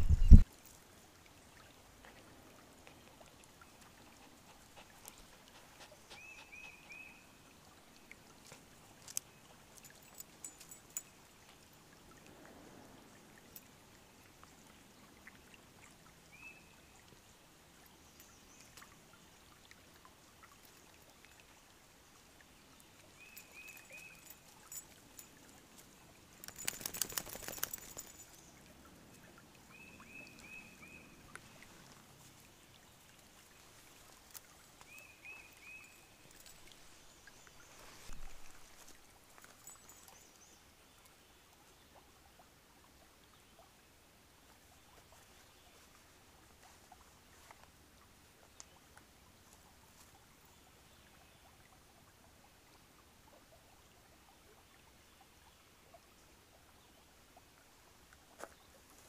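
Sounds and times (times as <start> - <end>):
bird chirping: 0.0 - 0.4
faint creek trickling: 0.0 - 59.0.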